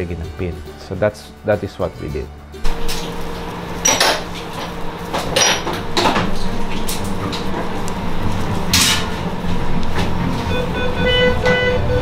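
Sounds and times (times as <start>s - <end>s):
steady hum: 2.6s - 12.0s.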